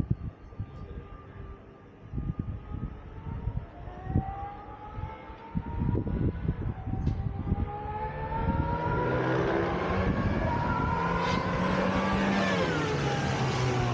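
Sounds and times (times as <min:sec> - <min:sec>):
race car engine passing by: 0:07.5 - 0:13.9.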